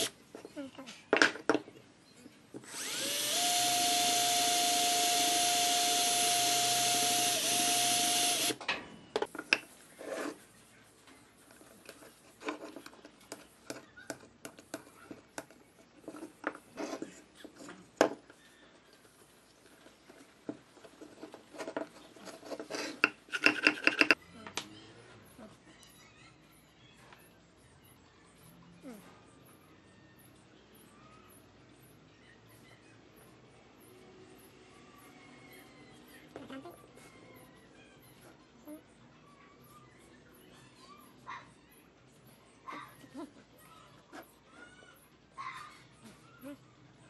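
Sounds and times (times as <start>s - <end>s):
cordless drill motor running: 2.7s - 8.6s
wooden pieces knocking and rubbing: 19.6s - 24.2s.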